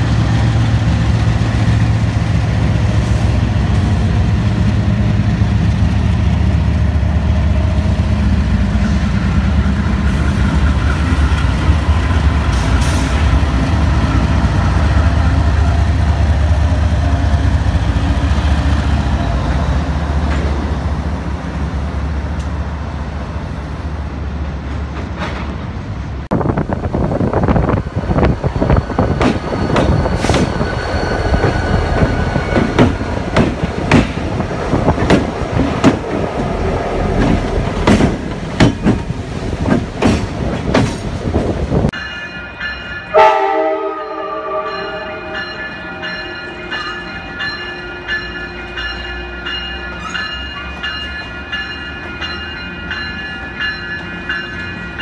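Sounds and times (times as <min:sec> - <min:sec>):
locomotive engines droning: 0:00.0 - 0:55.0
train wheels clanking over rail joints: 0:28.9 - 0:41.6.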